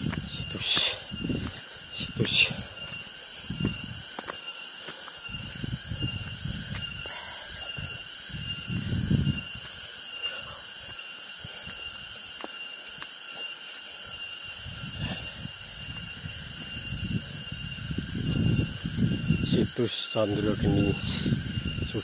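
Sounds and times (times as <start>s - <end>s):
rustles and thumps of walking: 0.0s - 17.0s
insects humming: 0.0s - 22.0s.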